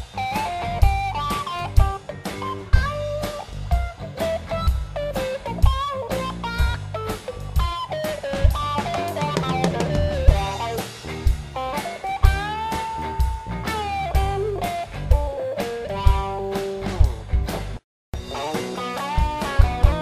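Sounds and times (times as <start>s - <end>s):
bass: 0.0s - 20.0s
drum kit beat: 0.0s - 20.0s
electric guitar lead with string bends: 0.0s - 20.0s.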